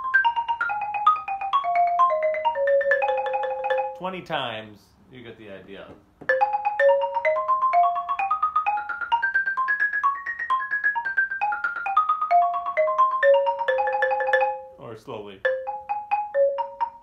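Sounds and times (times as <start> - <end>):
xylophone playing a scale: 0.0 - 4.1, 6.3 - 14.8, 15.4 - 17.0.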